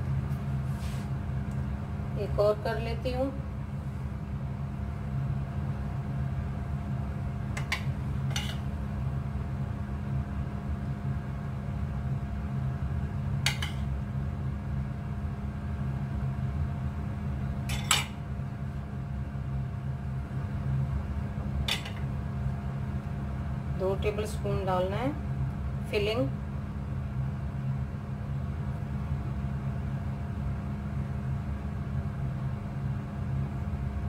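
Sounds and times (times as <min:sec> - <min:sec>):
steady low hum: 0:00.0 - 0:34.0
metal spoon clinking on plate: 0:07.6 - 0:08.6, 0:17.7 - 0:18.2, 0:21.7 - 0:22.0.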